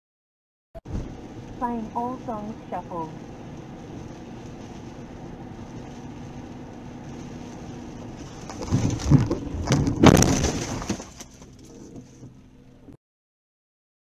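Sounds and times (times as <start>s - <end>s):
car road and engine noise: 0.8s - 13.0s
car collision crunching bangs: 8.2s - 12.1s.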